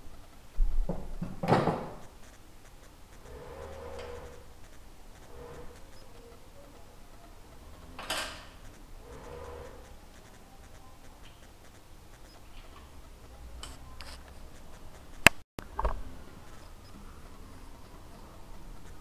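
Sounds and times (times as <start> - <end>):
metal scrape: 2.0 - 15.2.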